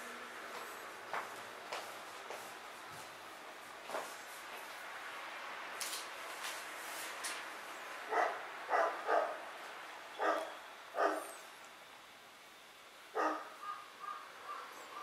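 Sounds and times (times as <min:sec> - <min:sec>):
dog barking: 0:08.1 - 0:09.4, 0:10.2 - 0:11.4, 0:13.2 - 0:15.0.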